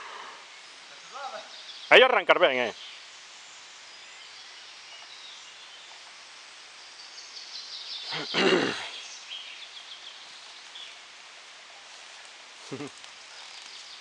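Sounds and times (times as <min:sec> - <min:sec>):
faint bird chirps: 0:00.0 - 0:11.1.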